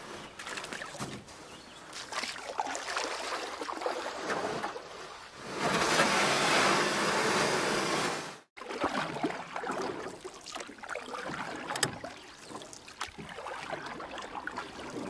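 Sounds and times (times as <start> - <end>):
water lapping against hull: 0.0 - 6.6, 8.6 - 15.0
paddle splashes: 0.3 - 7.3, 8.5 - 15.0.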